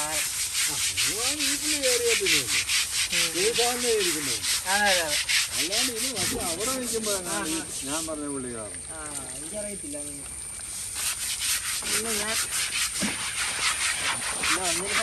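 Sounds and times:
scrubbing elephant hide: 0.0s - 15.0s.

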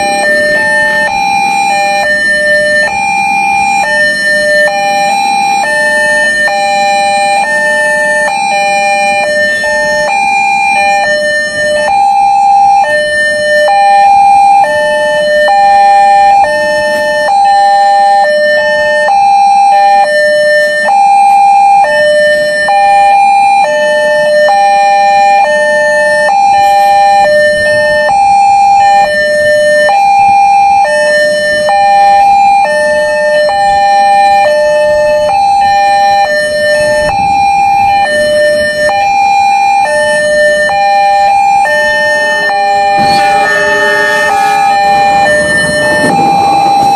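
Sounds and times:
level-crossing two-tone chime: 41.6s - 46.9s.

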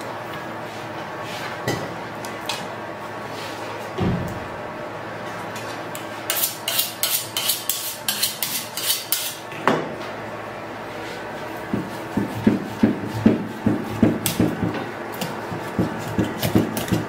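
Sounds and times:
knife sharpening strokes: 6.3s - 9.4s.

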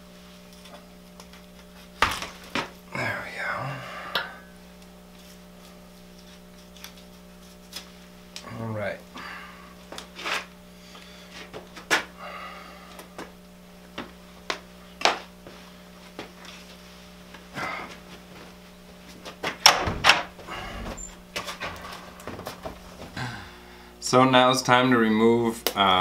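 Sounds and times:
steady low hum: 0.0s - 26.0s
handling knocks: 19.5s - 23.2s.

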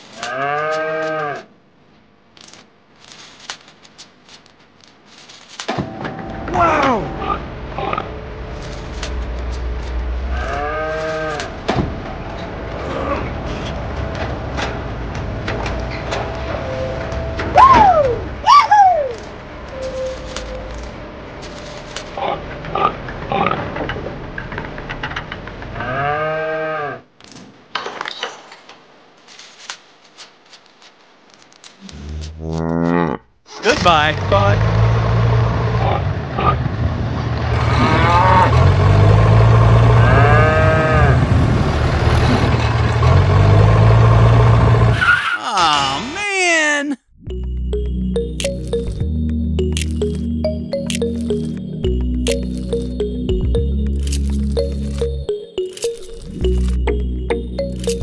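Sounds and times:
low rumble: 5.8s - 17.5s, 37.6s - 45.0s
farm animal calling: 37.6s - 38.8s, 39.9s - 41.3s
toy parts clicking and knocking: 53.9s - 56.8s, 57.6s - 58.0s.

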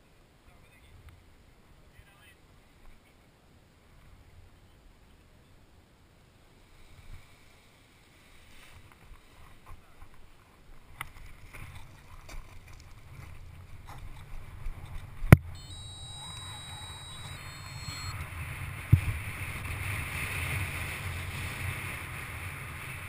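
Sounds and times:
variometer beeping: 15.6s - 18.2s
wind rushing over microphone: 17.0s - 23.0s.

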